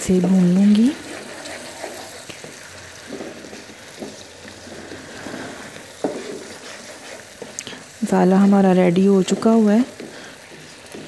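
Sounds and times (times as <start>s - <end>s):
sauce sizzling in a wok: 0.0s - 11.0s
spoon scraping pan: 0.2s - 11.0s
spoon knocking pan: 2.4s - 4.6s, 5.9s - 6.8s, 8.3s - 11.0s.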